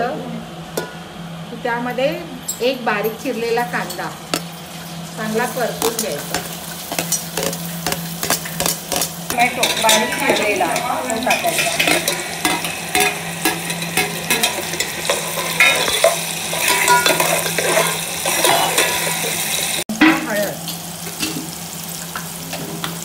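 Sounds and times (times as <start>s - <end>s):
onion sizzling in oil: 3.2s - 23.0s
spoon scraping metal pot: 3.8s - 19.4s.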